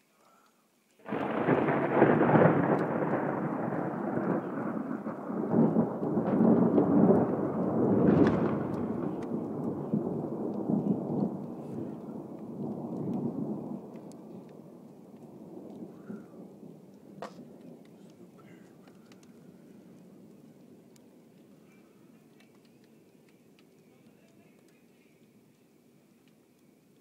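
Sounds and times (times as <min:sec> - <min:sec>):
thunderclap rumbling: 0:01.0 - 0:22.1.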